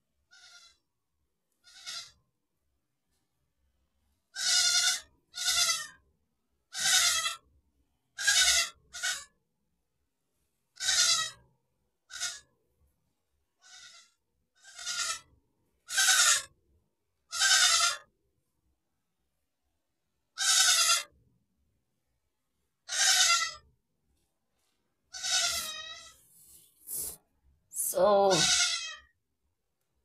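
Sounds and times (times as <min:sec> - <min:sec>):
goat bleating: 0:01.6 - 0:02.2, 0:04.4 - 0:05.9, 0:06.7 - 0:07.4, 0:08.2 - 0:09.2, 0:10.8 - 0:11.3, 0:13.6 - 0:14.0, 0:14.6 - 0:15.2, 0:15.9 - 0:16.4, 0:17.3 - 0:18.0, 0:20.4 - 0:21.1, 0:22.9 - 0:23.6, 0:25.1 - 0:26.2, 0:28.3 - 0:29.0.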